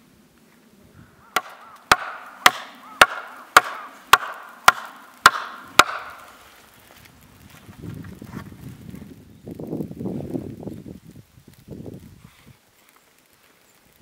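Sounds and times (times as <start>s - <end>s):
axe chopping wood: 1.4s - 6.4s.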